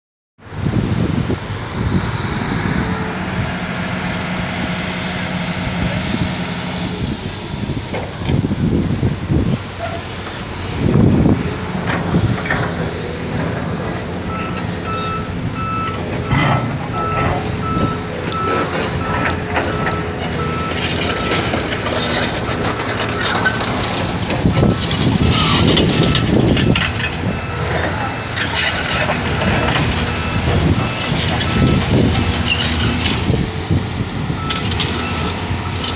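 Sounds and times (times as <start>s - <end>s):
diesel earthmoving machinery running: 0.4s - 35.9s
reversing alarm beeps: 14.3s - 21.5s, 24.5s - 33.2s, 34.4s - 35.9s.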